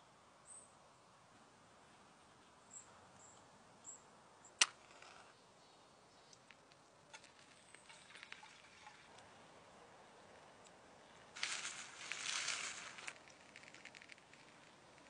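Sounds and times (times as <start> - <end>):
paper burning crackle: 6.4 - 9.2, 11.0 - 15.0
match striking with hiss: 11.4 - 14.8.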